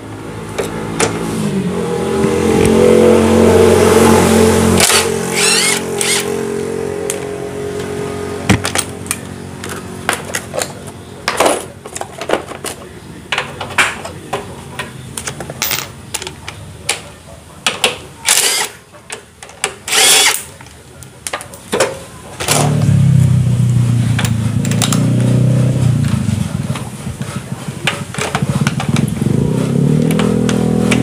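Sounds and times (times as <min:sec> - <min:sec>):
impact wrench hammering: 0:04.8 - 0:06.3.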